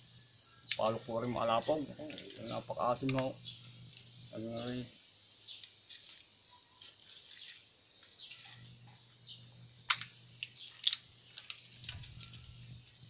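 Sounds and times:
small birds chirping: 0:00.2 - 0:13.0
hands rustling pods and leaves: 0:02.0 - 0:09.0, 0:09.9 - 0:13.0.

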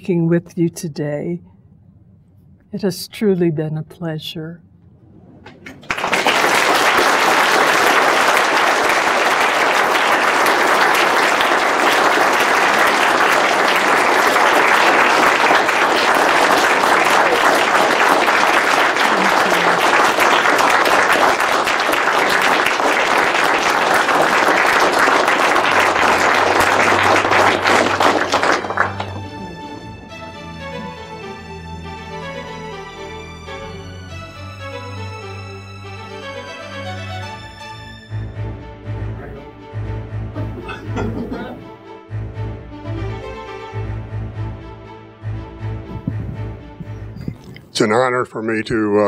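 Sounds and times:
audience applauding: 0:05.4 - 0:32.3, 0:40.6 - 0:41.6.

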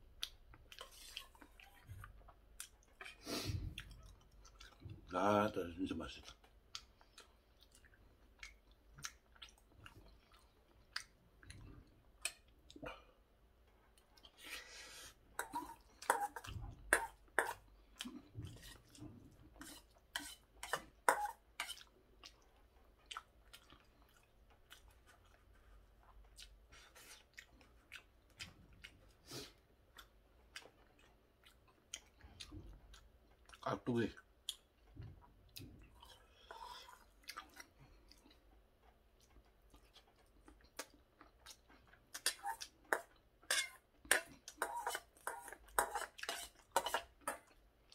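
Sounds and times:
person chewing food: 0:00.0 - 0:05.2, 0:06.2 - 0:47.9
metal spoon scraping bowl: 0:19.6 - 0:21.8, 0:43.5 - 0:47.4.

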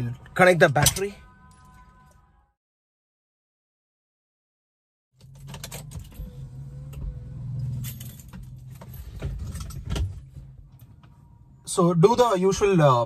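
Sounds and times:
keys jangling and clicking: 0:05.2 - 0:06.4, 0:07.7 - 0:09.9
low steady hum: 0:05.3 - 0:12.6.

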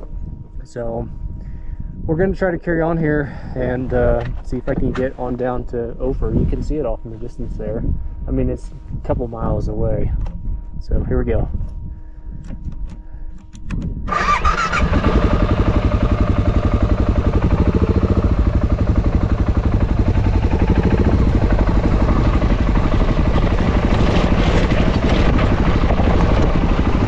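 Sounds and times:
motorcycle engine starting and running: 0:12.8 - 0:27.0.

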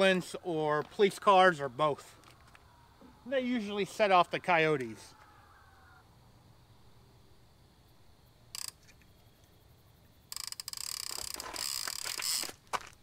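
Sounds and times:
footsteps on gravel and grass: 0:11.1 - 0:13.0.

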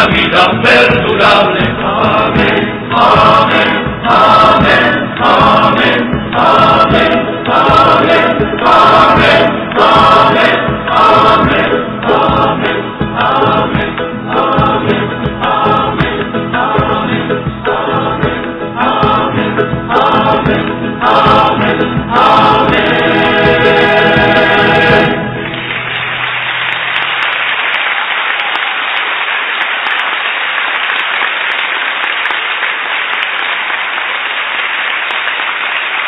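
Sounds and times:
choir singing: 0:00.0 - 0:25.9
applause: 0:25.4 - 0:36.0.

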